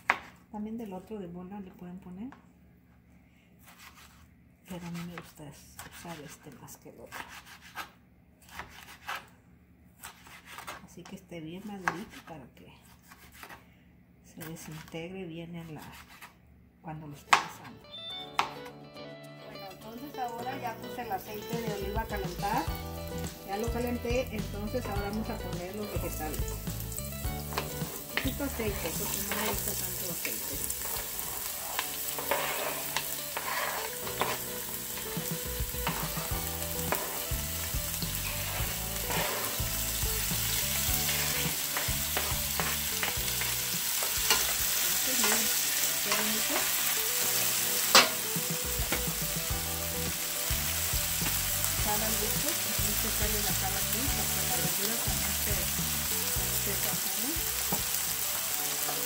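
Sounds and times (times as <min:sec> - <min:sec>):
vegetables sizzling in oil: 0:19.8 - 0:59.0
wooden spoon scraping pan: 0:27.4 - 0:35.2, 0:35.8 - 0:46.8.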